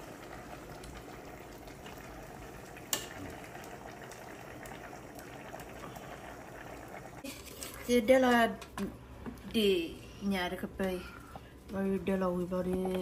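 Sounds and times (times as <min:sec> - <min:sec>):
stew bubbling in a pot: 0:00.0 - 0:10.2.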